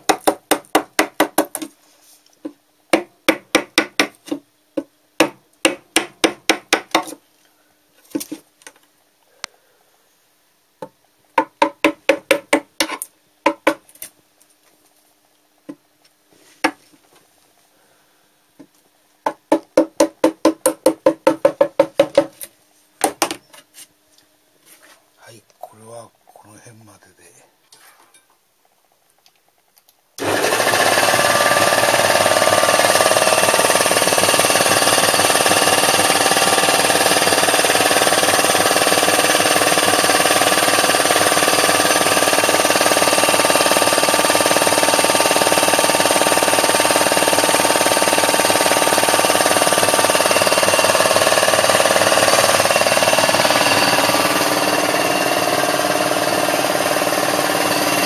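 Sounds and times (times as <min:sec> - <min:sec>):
air compressor running: 0:30.2 - 0:58.0.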